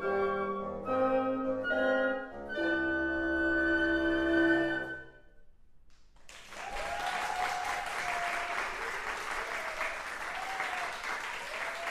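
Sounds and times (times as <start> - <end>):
woodwind quintet chord: 0.0 - 5.2
audience applauding: 6.2 - 11.9
person whooping: 6.6 - 11.9.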